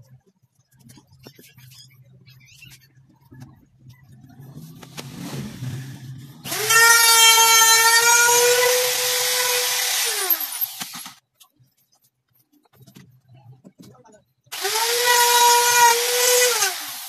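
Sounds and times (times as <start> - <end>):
electric wood router whining: 6.4 - 11.1, 14.5 - 17.0.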